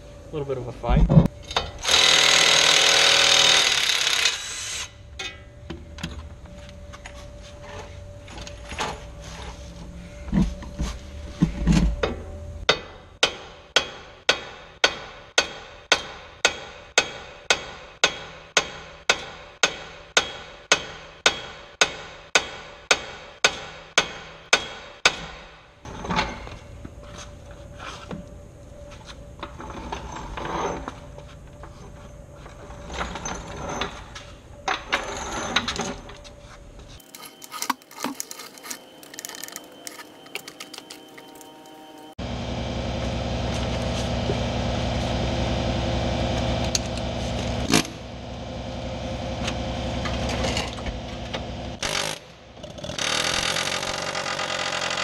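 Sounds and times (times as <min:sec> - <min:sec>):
knocks and scraping: 0:04.8 - 0:13.0, 0:25.8 - 0:42.2, 0:46.3 - 0:54.2.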